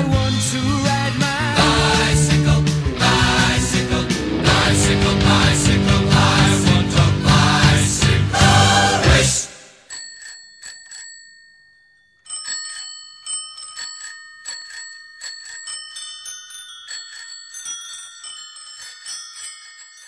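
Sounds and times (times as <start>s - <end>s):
bicycle bells ringing: 9.8s - 20.0s.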